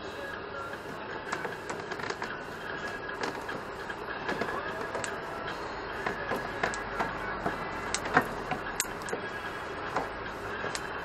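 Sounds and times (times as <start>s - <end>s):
steady background noise: 0.0s - 11.0s
metallic clicks and knocks: 1.3s - 5.2s, 6.0s - 9.2s.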